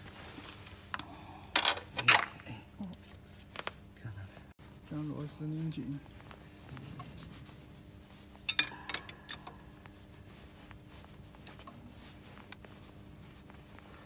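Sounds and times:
socket tool scraping: 0:08.3 - 0:09.7.

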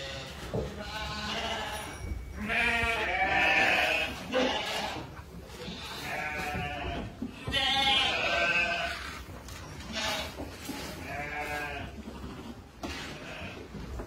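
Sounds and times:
sheep bleating: 0:00.0 - 0:09.2, 0:09.8 - 0:12.0.

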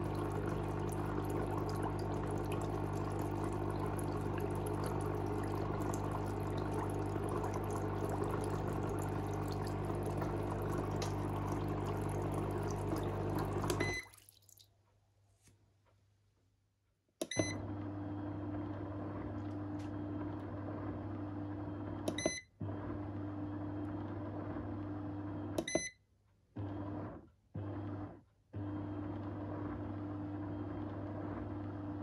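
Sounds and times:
motor humming: 0:00.0 - 0:13.9.

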